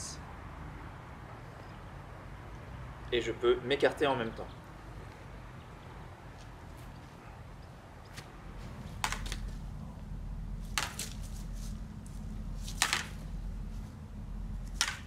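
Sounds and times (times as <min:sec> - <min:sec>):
low steady hum: 0:04.4 - 0:15.0
lightsaber blades clashing: 0:14.7 - 0:15.0.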